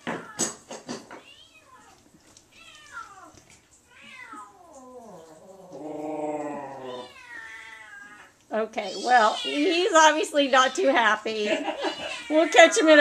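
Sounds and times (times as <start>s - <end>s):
cat meowing: 1.3s - 9.7s.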